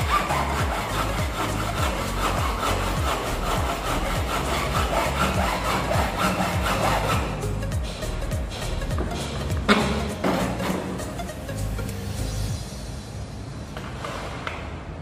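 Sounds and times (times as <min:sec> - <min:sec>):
hacksaw cutting: 0:00.0 - 0:07.6, 0:09.4 - 0:11.1.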